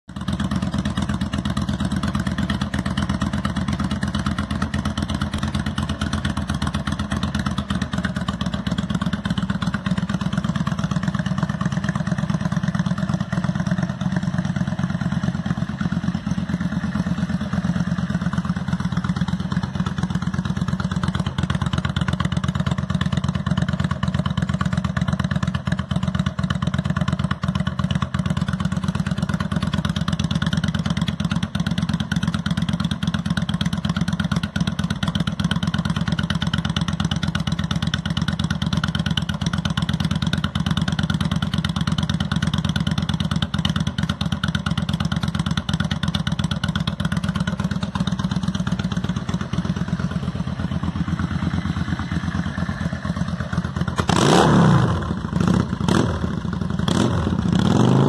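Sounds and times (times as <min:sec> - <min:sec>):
motorcycle engine idling: 0:00.1 - 0:58.0.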